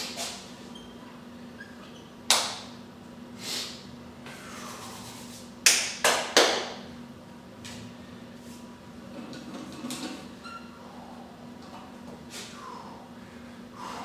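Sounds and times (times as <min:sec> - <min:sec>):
hands clapping: 0:02.3 - 0:02.6, 0:05.6 - 0:06.8.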